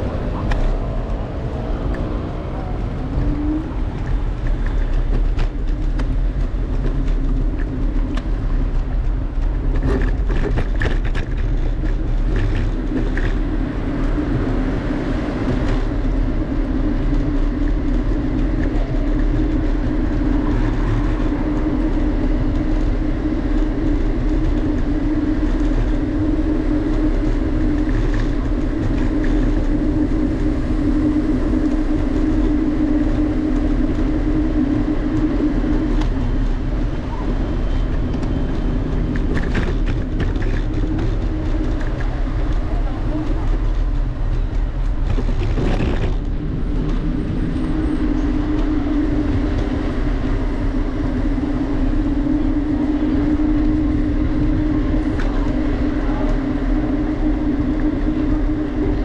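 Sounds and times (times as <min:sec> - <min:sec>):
droning hum: 0:00.0 - 0:59.0
vehicle engine rumble: 0:00.0 - 0:59.0.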